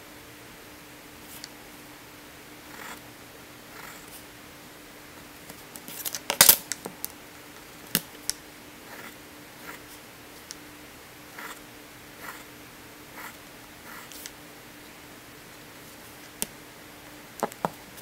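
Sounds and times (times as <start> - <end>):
pencil scratching on paper: 2.7 - 3.0, 3.7 - 4.2, 8.9 - 10.0, 11.3 - 11.6, 12.2 - 12.5, 13.1 - 14.3.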